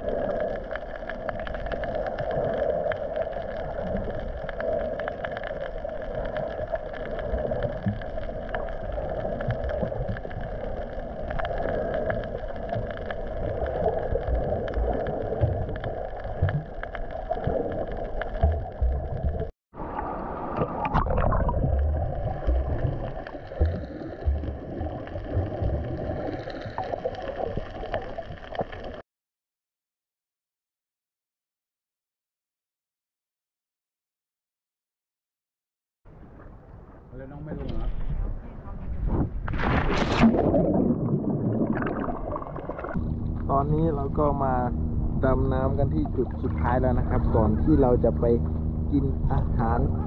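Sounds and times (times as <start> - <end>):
muffled underwater rush: 0.0 - 29.0, 36.1 - 50.0
constant hum: 42.7 - 50.0.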